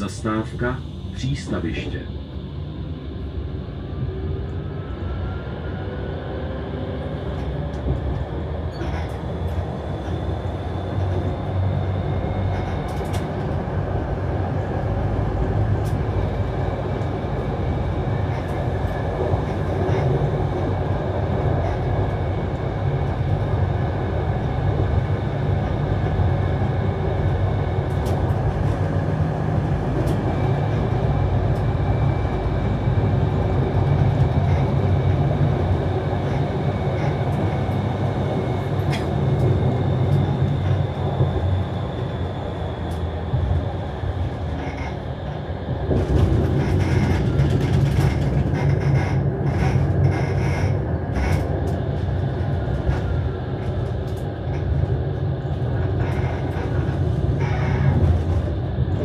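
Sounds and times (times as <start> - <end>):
tram wheels rumbling on track: 0.0 - 59.0.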